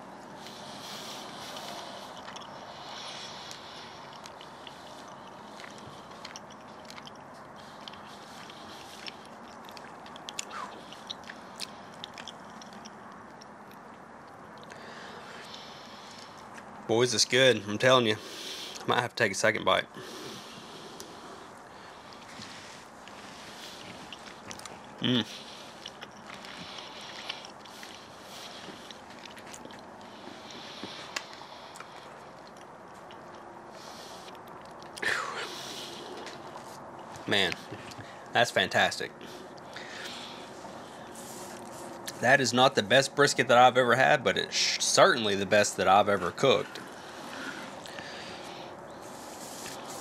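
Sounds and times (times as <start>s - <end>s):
person chewing food: 0.0s - 16.8s, 20.0s - 38.3s, 39.2s - 42.2s, 46.1s - 50.0s
steady background hiss: 0.0s - 50.0s
wet mouth clicks: 0.4s - 14.8s.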